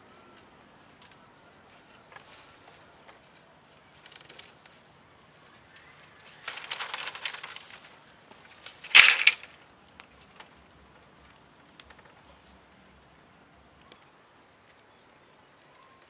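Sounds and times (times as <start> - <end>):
bamboo strips clattering: 3.8 - 4.9, 5.6 - 10.7.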